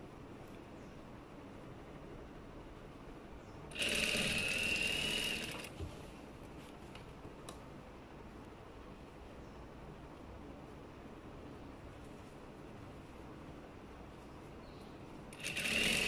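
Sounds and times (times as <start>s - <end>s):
sewing machine whining: 3.7s - 5.7s, 15.4s - 16.0s.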